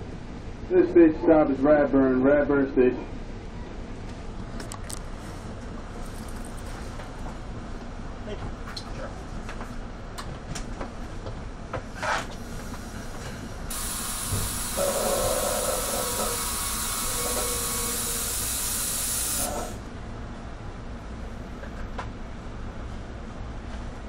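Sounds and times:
low train rumble: 0:00.0 - 0:18.6, 0:19.4 - 0:24.0
compressed air hiss: 0:12.4 - 0:19.8
brief train squeak: 0:14.2 - 0:18.0.

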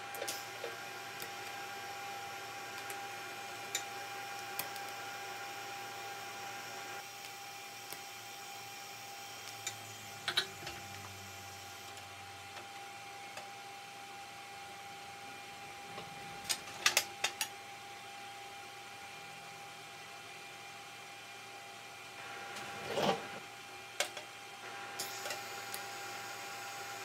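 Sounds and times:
welding arc buzzing: 0:00.0 - 0:12.6, 0:24.8 - 0:27.0
workshop hum: 0:00.0 - 0:27.0.

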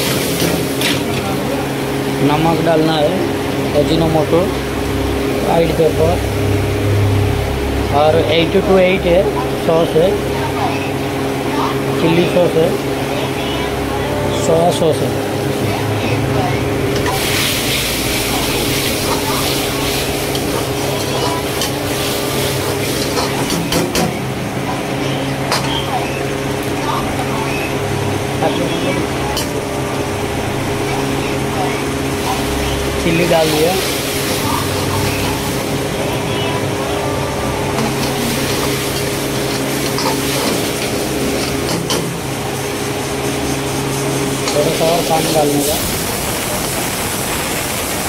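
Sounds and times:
sauce sizzling in wok: 0:00.0 - 0:01.0, 0:16.9 - 0:24.0, 0:29.1 - 0:36.0, 0:37.8 - 0:48.0
low hum: 0:00.0 - 0:48.0
ladle scraping wok: 0:16.9 - 0:24.0, 0:37.7 - 0:45.8.

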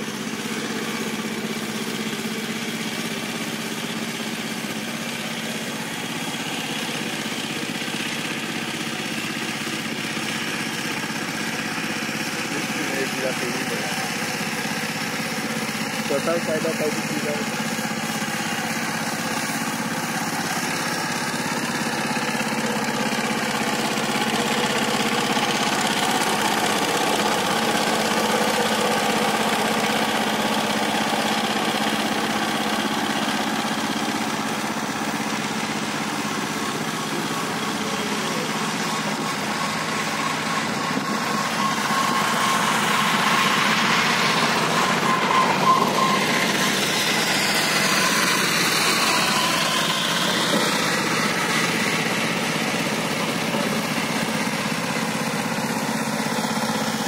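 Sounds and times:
diesel tiller engine running: 0:00.0 - 0:57.0.

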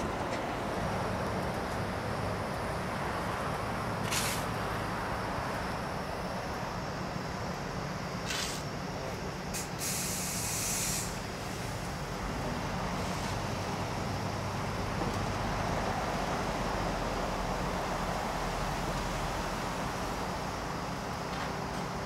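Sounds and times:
diesel engines running: 0:00.0 - 0:22.0
air hissing: 0:04.0 - 0:04.6, 0:08.2 - 0:08.8, 0:09.5 - 0:11.8.

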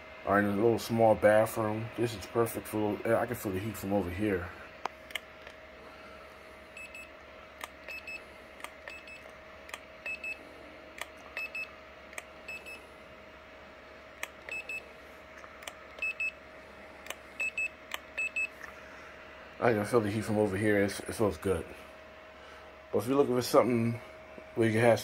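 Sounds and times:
steady faint hum: 0:00.0 - 0:25.0
sharp clicks: 0:17.9 - 0:18.1.

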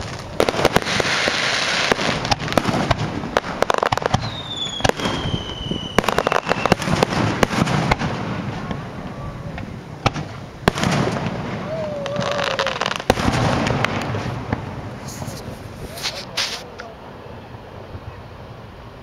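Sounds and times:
fireworks bangs and crackling pops: 0:00.0 - 0:16.8
firework whistle gliding down: 0:03.7 - 0:07.0, 0:11.5 - 0:13.1.

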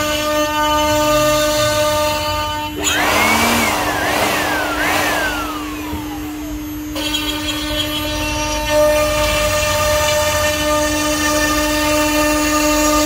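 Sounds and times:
power tool motor whining: 0:02.6 - 0:09.5
steady low hum: 0:02.8 - 0:07.0.

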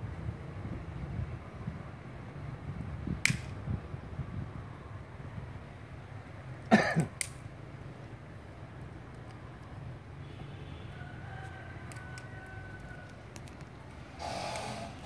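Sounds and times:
rough burst: 0:14.0 - 0:15.0.

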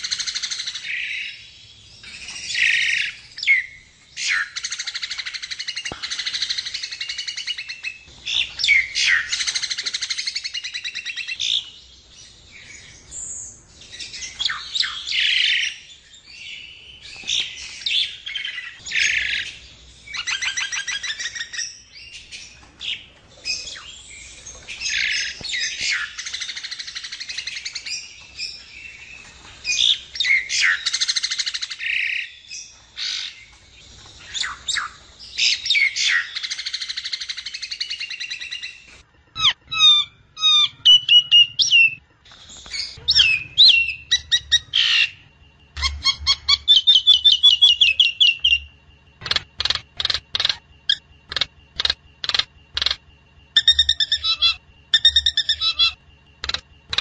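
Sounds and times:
bird chattering and rattling: 0:49.2 - 0:53.0, 0:56.4 - 0:57.0.

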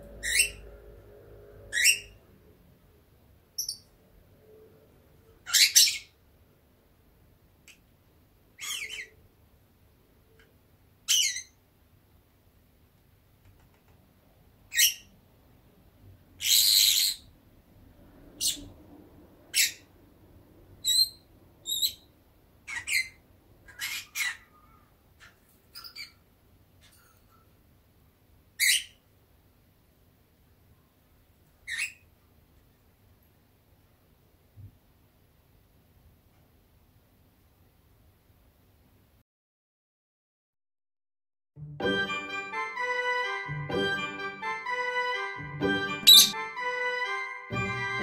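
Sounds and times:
lovebird chirping: 0:00.0 - 0:01.0, 0:01.6 - 0:02.2, 0:03.6 - 0:04.0, 0:05.4 - 0:06.2, 0:08.6 - 0:09.2, 0:20.8 - 0:22.1, 0:46.0 - 0:46.4.

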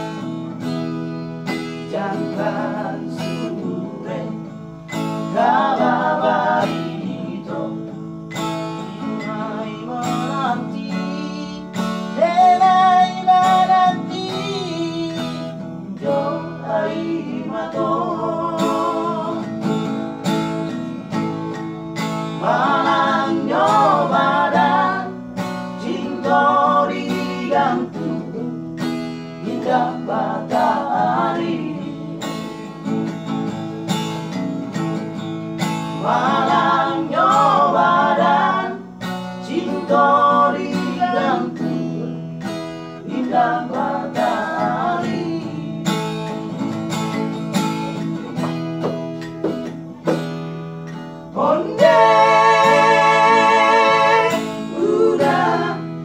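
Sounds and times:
strummed acoustic guitar: 0:00.0 - 0:56.0
men singing: 0:01.5 - 0:20.0, 0:22.3 - 0:32.5, 0:35.6 - 0:46.0, 0:51.2 - 0:56.0.

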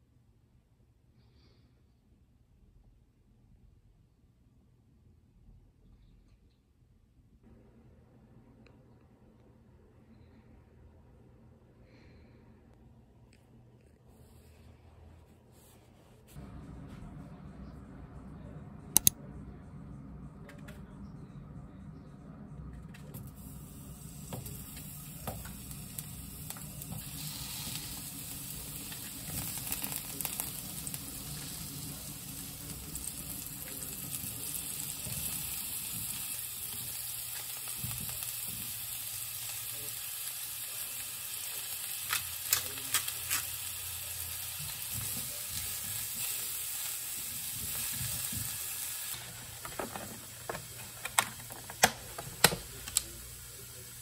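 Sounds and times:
food sizzling in a pan: 0:23.6 - 0:50.8.

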